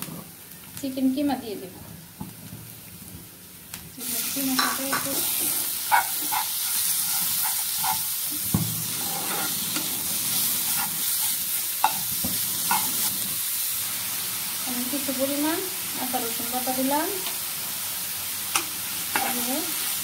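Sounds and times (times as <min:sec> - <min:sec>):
meat sizzling in hot oil: 0:02.0 - 0:20.0
spatula scraping and tapping pan: 0:04.5 - 0:10.0, 0:10.6 - 0:13.2, 0:18.5 - 0:19.4.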